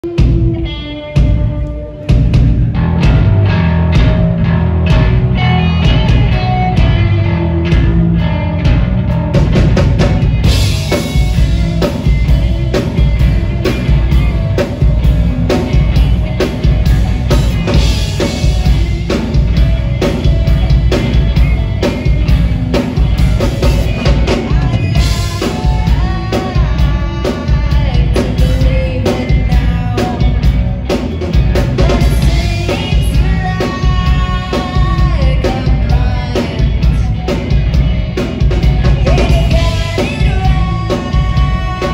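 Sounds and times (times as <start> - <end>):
drum kit: 0.0 - 41.9
electric bass: 0.0 - 41.9
electric guitar: 0.0 - 41.9
woman singing into microphone: 24.1 - 30.6, 31.8 - 37.0, 38.9 - 41.9.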